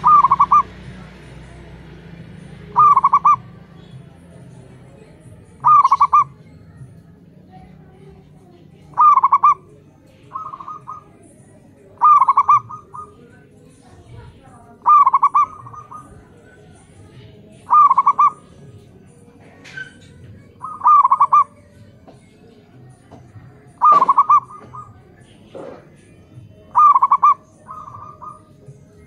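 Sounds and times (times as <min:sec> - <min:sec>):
doves cooing: 0:00.0 - 0:07.0, 0:07.6 - 0:29.0
fainter answering dove coo: 0:08.9 - 0:09.7, 0:23.8 - 0:25.0.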